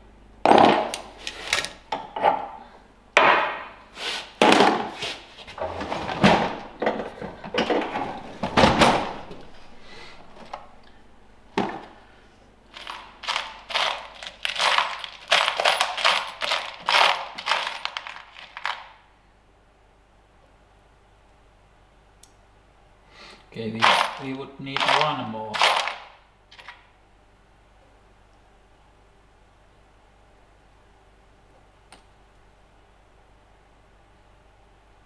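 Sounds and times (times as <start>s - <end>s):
screws and bolts clinking: 12.7s - 19.0s, 23.8s - 26.8s.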